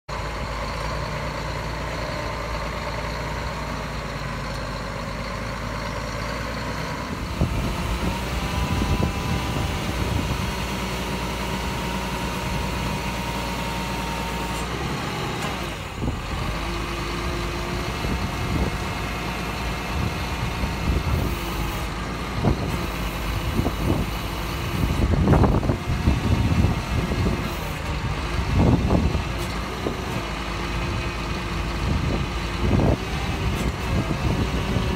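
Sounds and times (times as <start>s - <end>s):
diesel engine idling: 0.1s - 34.9s
hydraulic whine: 7.1s - 16.7s.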